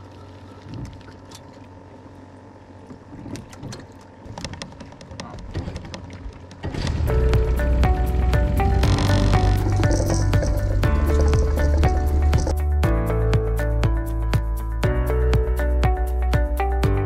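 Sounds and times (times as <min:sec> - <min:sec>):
boat motor humming: 0:00.0 - 0:14.7
light clicks and knocks: 0:03.2 - 0:06.7
background music: 0:06.8 - 0:17.0.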